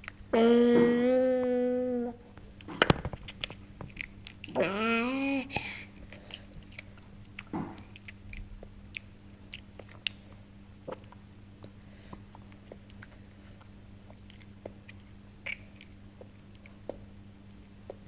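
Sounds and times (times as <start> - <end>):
chewing and mouth clicks: 0.0 - 0.2, 3.2 - 4.7, 5.5 - 18.0.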